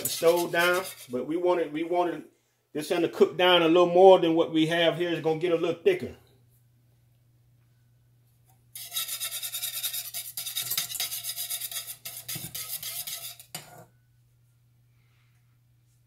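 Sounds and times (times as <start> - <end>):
whisk scraping metal saucepan: 0.0 - 1.3, 8.8 - 13.9.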